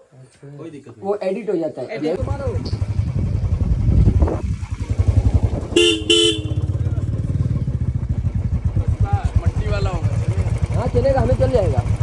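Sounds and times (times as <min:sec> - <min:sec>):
motorcycle engine running: 0:02.2 - 0:12.0
short horn beeps: 0:05.8 - 0:06.8.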